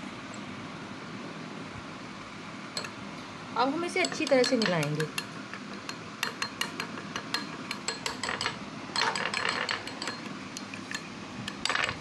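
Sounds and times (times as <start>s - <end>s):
spoon clinking against glass bowl: 4.0s - 12.0s
spoon scraping a bowl: 4.0s - 12.0s.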